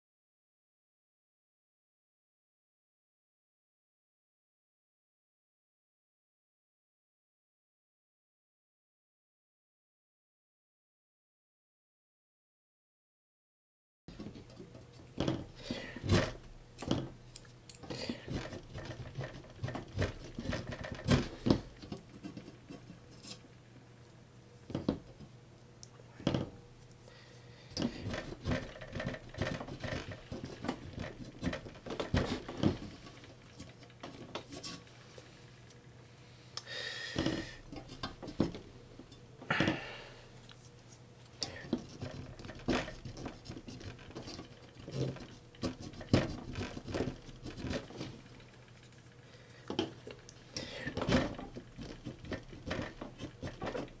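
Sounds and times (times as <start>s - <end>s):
plastic scraper scratching metal: 18.0s - 23.4s, 27.8s - 33.0s, 41.5s - 48.2s, 50.8s - 54.0s.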